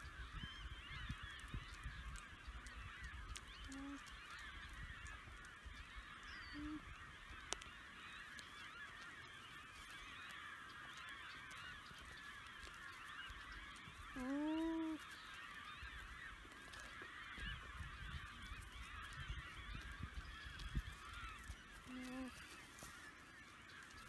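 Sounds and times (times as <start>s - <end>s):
flock of birds calling: 0.0s - 24.0s
alpaca humming: 21.9s - 22.4s.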